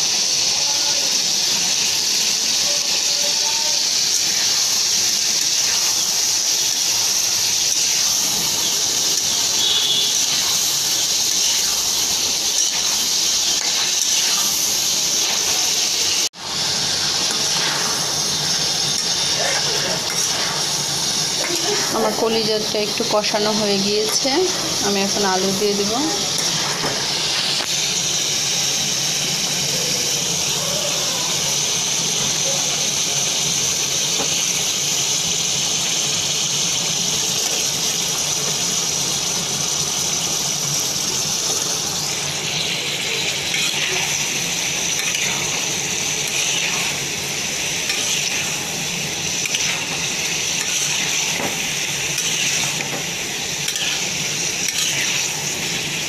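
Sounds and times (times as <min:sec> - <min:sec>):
food sizzling in a frying pan: 0:00.0 - 0:56.0
metal spatula scraping a pan: 0:12.4 - 0:16.2, 0:17.1 - 0:22.3, 0:43.2 - 0:53.0, 0:53.6 - 0:55.4.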